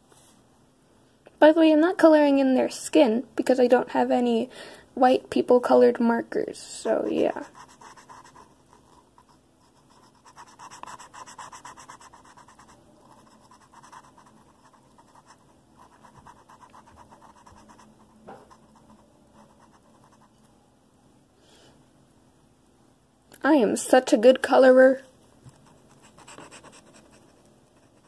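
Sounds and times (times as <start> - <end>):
marker scrubbing on paper: 6.9 - 20.3, 25.5 - 27.2.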